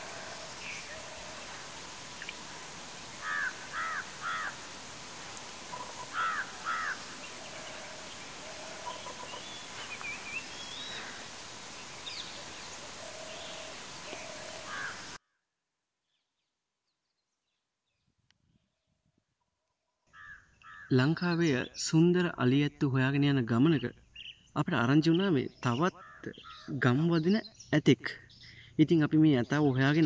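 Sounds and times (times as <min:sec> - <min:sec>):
crow cawing: 0:00.0 - 0:15.2, 0:20.1 - 0:20.9, 0:26.0 - 0:26.7
small bird calls: 0:00.0 - 0:15.2, 0:20.1 - 0:21.8, 0:23.7 - 0:28.8
steady outdoor hiss: 0:00.0 - 0:15.2.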